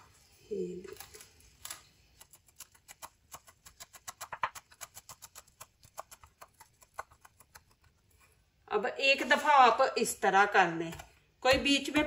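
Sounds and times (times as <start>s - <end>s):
knife chopping on wooden board: 10.9s - 12.0s.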